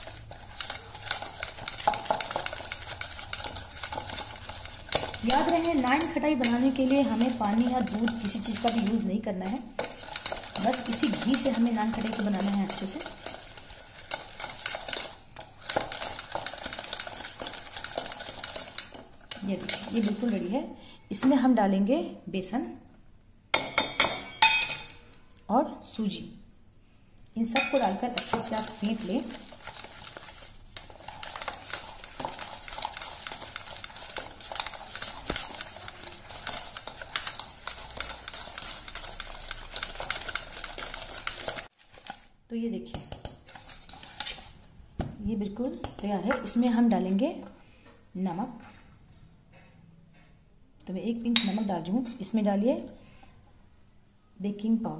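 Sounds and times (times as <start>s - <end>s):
whisk clicking against steel bowl: 0.0s - 20.4s, 27.6s - 41.7s.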